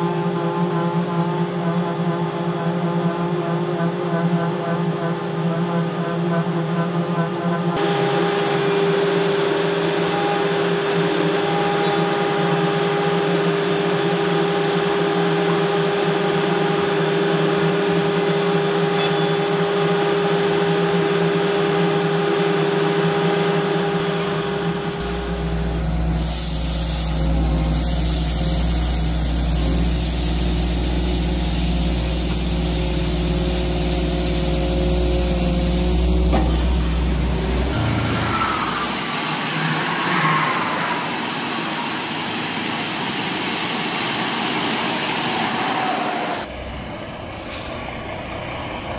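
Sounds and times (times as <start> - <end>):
machinery hum: 0.0 - 48.9
held tone: 11.7 - 12.6, 18.9 - 20.0
deep heavy machinery rumble: 22.0 - 42.4, 45.6 - 48.9.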